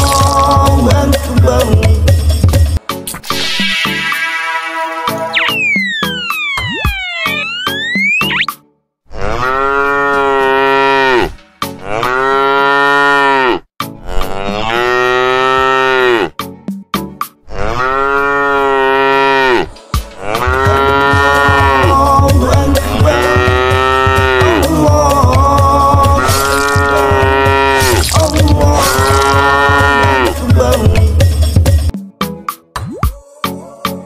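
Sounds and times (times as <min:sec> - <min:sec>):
cow mooing: 0:09.1 - 0:16.3, 0:17.4 - 0:21.9, 0:22.9 - 0:24.8, 0:26.1 - 0:30.4
low pulsing beat: 0:20.6 - 0:31.9.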